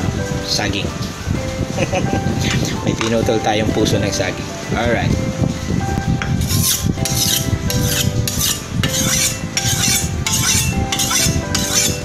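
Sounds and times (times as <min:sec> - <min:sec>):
knife scraping on sharpening block: 0:06.4 - 0:12.0.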